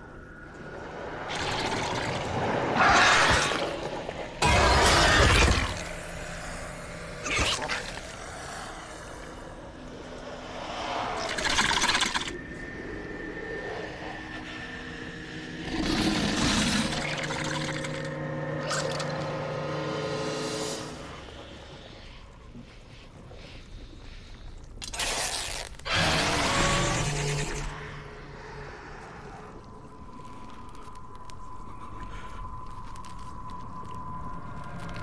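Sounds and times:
low droning tones: 3.5 - 24.9, 25.5 - 35.0.

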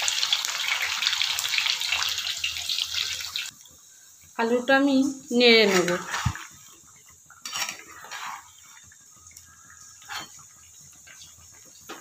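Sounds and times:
potatoes sizzling in oil: 0.0 - 12.0
spatula scraping pan: 5.3 - 9.0, 9.6 - 12.0.

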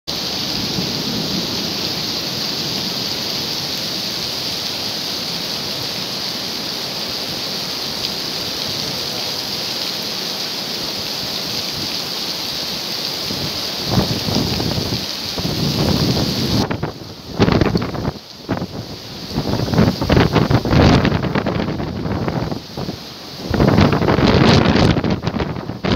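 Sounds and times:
heavy rain on pavement: 0.1 - 25.9
wind gust on microphone: 13.2 - 25.9.

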